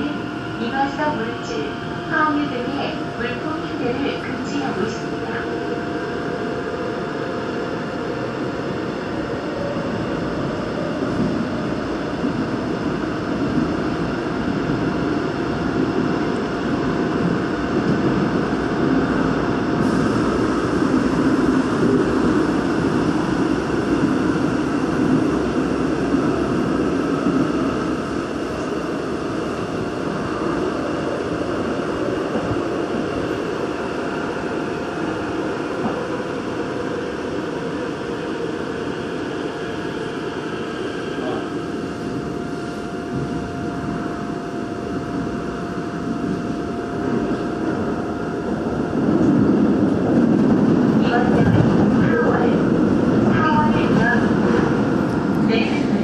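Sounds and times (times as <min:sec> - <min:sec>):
subway train wheels rumbling: 0:00.0 - 0:56.0.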